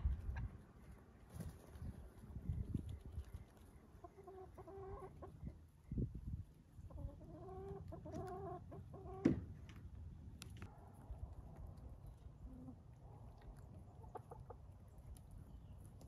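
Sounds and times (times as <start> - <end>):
hens clucking: 3.9 - 5.6, 6.8 - 9.2, 13.9 - 14.7.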